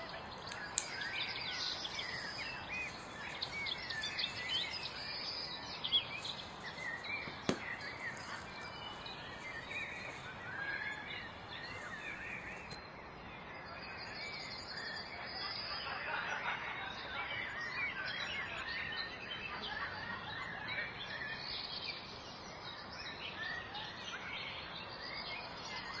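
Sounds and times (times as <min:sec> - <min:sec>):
birds chirping: 0:00.0 - 0:12.8
steady background hiss: 0:00.0 - 0:12.8.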